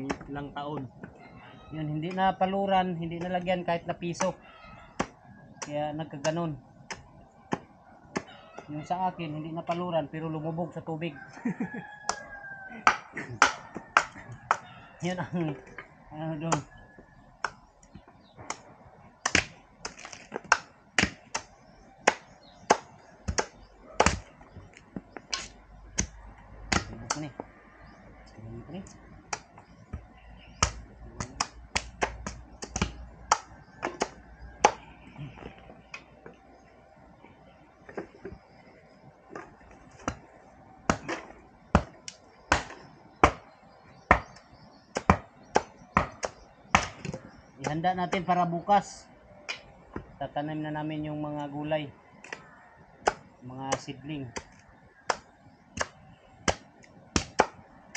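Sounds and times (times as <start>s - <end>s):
machete chopping bamboo: 12.8s - 14.7s, 19.2s - 24.4s, 25.3s - 27.3s, 30.5s - 34.9s, 40.9s - 43.4s, 44.1s - 48.2s, 53.0s - 57.6s.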